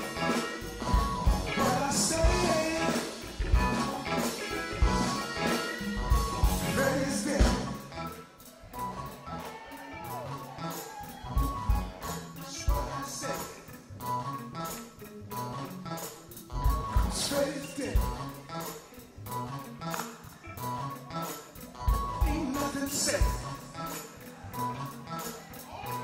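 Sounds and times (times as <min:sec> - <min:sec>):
bass drum beat: 0:00.0 - 0:08.0, 0:11.2 - 0:13.0, 0:16.5 - 0:17.4, 0:18.0 - 0:18.3, 0:21.8 - 0:23.6
person singing: 0:00.0 - 0:08.2, 0:12.3 - 0:13.8, 0:21.9 - 0:26.0
live soul band playing: 0:00.0 - 0:26.0.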